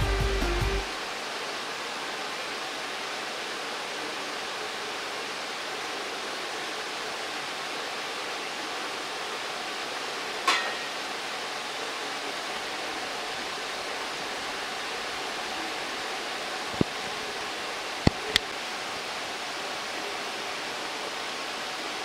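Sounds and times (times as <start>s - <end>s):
sharp clink: 10.5s - 11.0s.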